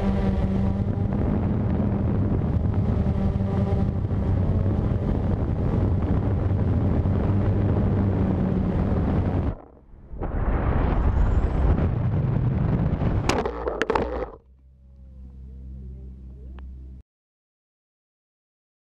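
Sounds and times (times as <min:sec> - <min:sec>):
quadcopter motors humming: 0:00.0 - 0:09.8
wind on microphone: 0:00.0 - 0:14.4.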